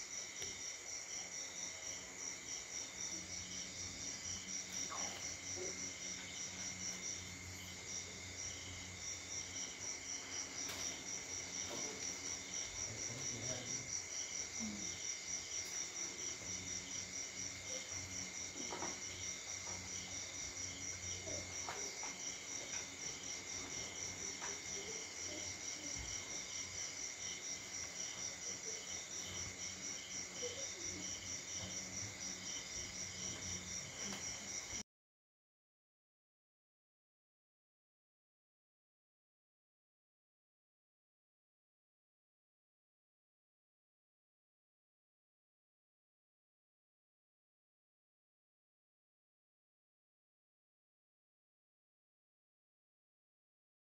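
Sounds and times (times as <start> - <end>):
crickets chirping: 0.0 - 34.8
steady insect tone: 0.0 - 34.8.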